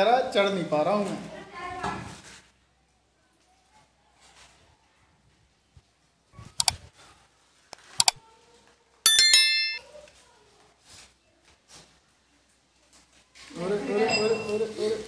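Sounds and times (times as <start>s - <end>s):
bright bell ding: 9.1s - 9.8s.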